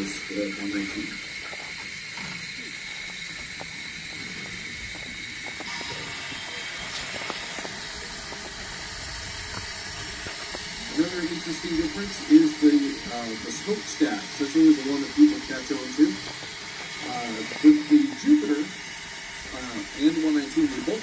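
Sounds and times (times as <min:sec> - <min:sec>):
steam locomotive hissing: 0:00.0 - 0:21.0.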